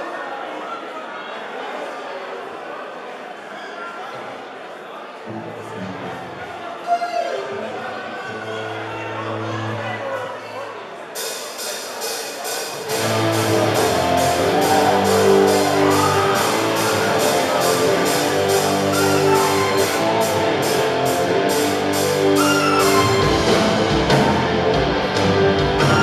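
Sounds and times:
drum kit with cymbals: 11.2 - 26.0
keyboard: 11.2 - 26.0
electric guitars: 12.8 - 26.0
low bass: 12.9 - 26.0.

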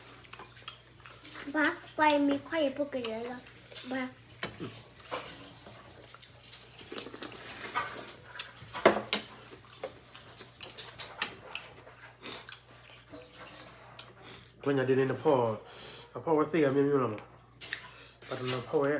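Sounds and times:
mouth sounds of eating: 11.5 - 13.0.

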